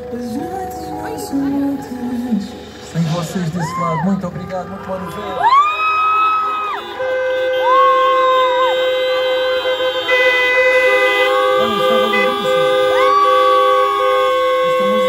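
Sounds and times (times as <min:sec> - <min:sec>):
car horns honking: 0:05.4 - 0:15.0.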